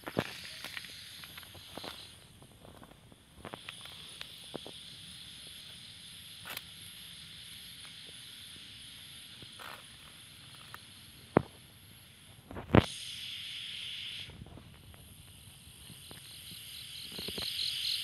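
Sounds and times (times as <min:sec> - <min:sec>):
night insects chirring: 0:00.0 - 0:18.0.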